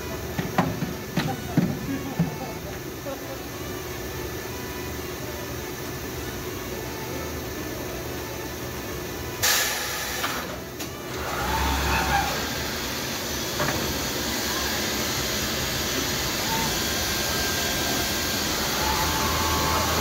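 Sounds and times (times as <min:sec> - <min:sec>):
boring machine running: 0:00.0 - 0:20.0
loud hiss: 0:09.4 - 0:10.5
machine head whines: 0:14.9 - 0:20.0.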